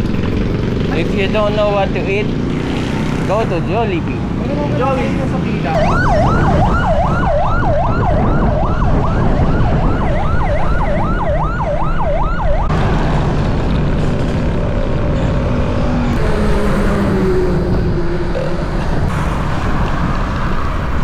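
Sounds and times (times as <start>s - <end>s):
siren yelping: 5.6s - 12.7s, 15.9s - 19.1s
steady low rumble: 12.7s - 21.0s.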